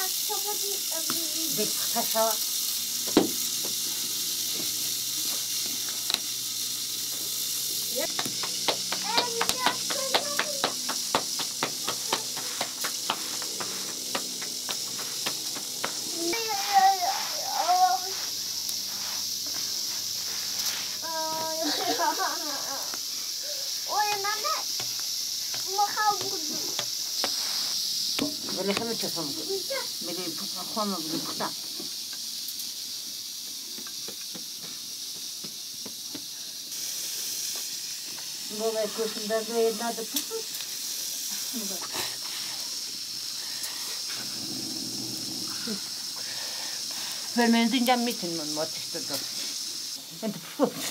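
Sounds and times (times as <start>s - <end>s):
steady hiss: 0.0s - 50.9s
hands patting dough: 8.1s - 16.1s.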